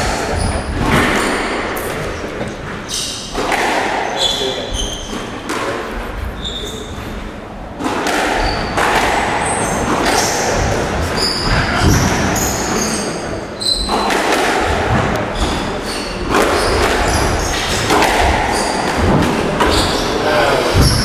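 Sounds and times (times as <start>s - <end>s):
squash ball thudding: 0.0s - 4.2s, 7.7s - 12.8s, 13.7s - 21.0s
shoes squeaking on court: 0.2s - 3.4s, 6.3s - 7.2s, 8.4s - 8.8s, 9.4s - 14.2s, 15.3s - 21.0s.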